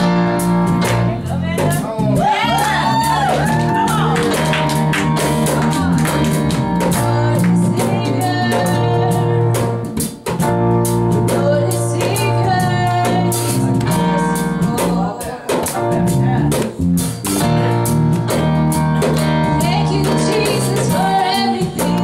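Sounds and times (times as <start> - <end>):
live band playing: 0.0 - 22.0
woman singing: 5.4 - 9.9, 11.2 - 15.6, 19.6 - 22.0.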